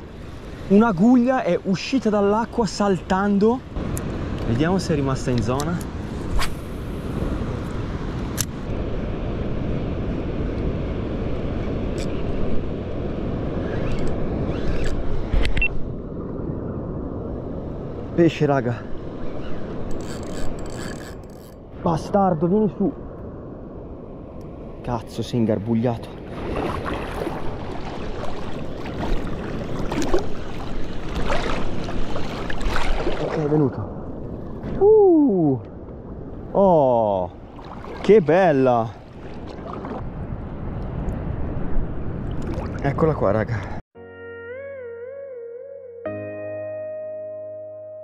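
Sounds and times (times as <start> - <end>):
surf rumble: 0.0 - 19.9, 21.7 - 43.8
wind: 0.0 - 44.0
sea water sloshing and splashing: 26.2 - 34.8, 37.3 - 40.1, 42.2 - 43.1.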